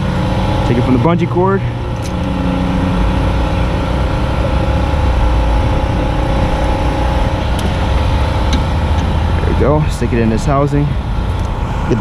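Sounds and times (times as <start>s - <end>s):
engine running drone: 0.0s - 12.0s.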